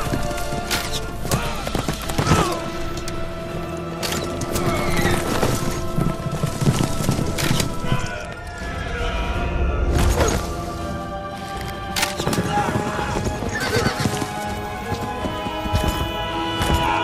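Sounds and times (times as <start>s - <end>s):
orchestral music with held notes: 0.0s - 17.0s
galloping horse hooves: 4.4s - 8.4s, 11.5s - 17.0s.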